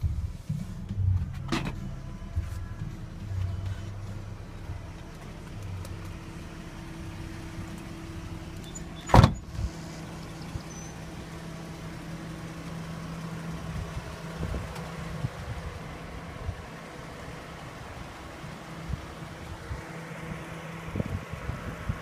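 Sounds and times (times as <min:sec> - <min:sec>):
steady low hum: 0:00.0 - 0:22.0
car door shutting thud: 0:01.3 - 0:01.8, 0:09.0 - 0:09.5.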